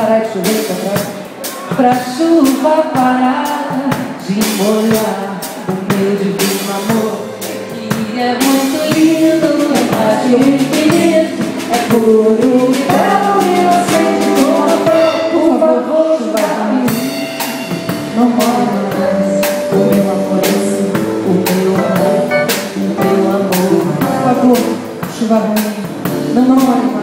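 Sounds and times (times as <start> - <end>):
keyboard: 0.0 - 27.0
woman singing: 0.0 - 27.0
double bass: 4.3 - 27.0.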